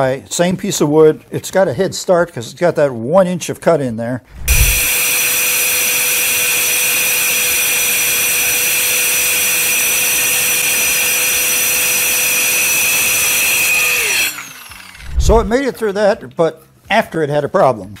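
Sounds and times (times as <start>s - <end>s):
circular saw whining: 4.3s - 15.6s.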